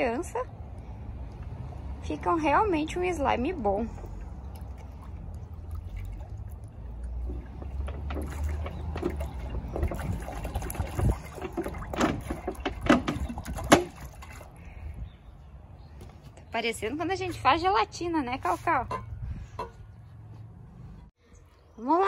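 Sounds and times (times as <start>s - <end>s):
water glugging from bottle: 3.8s - 15.1s.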